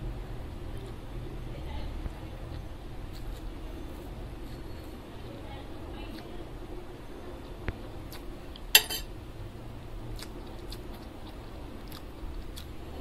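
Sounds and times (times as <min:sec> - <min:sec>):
person chewing noodles: 0:10.0 - 0:13.0.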